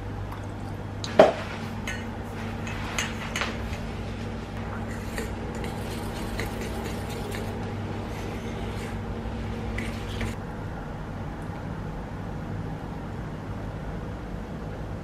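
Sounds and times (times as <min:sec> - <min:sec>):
steady low hum: 0:00.0 - 0:15.0
spoon scraping metal bowl: 0:01.7 - 0:04.0, 0:04.8 - 0:10.4
spoon stirring thick batter: 0:04.9 - 0:10.4.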